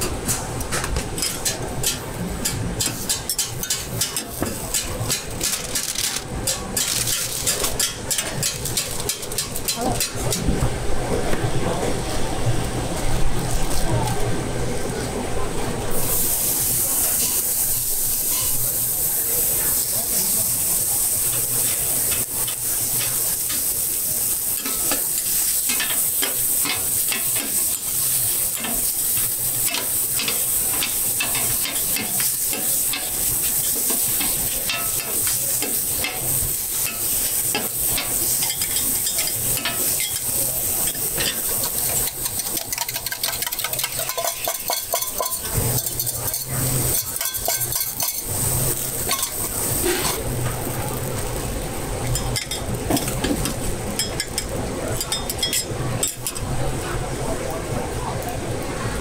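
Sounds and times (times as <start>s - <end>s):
pancake sizzling in oil: 15.9s - 56.5s.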